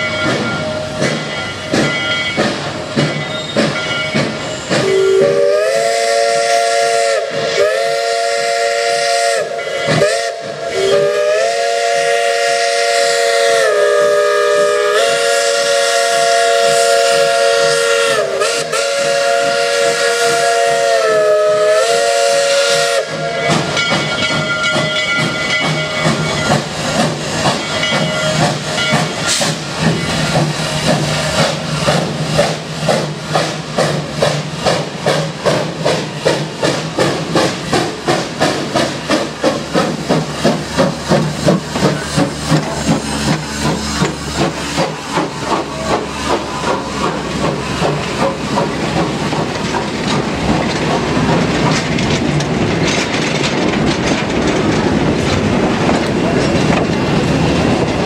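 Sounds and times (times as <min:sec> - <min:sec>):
steam locomotive chime whistle: 0:00.0 - 0:30.5
hissing steam: 0:00.0 - 0:58.0
locomotive exhaust chuffing: 0:01.0 - 0:58.0.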